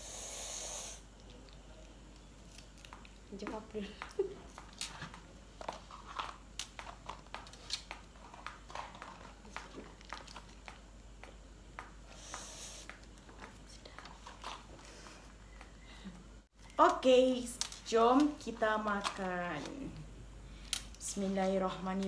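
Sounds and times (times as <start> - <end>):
plastic sachets crinkling: 1.1 - 3.4.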